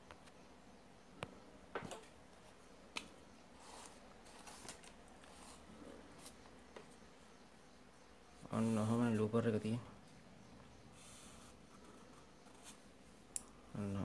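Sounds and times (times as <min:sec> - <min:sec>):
soft rustling on paper: 0:03.5 - 0:07.0.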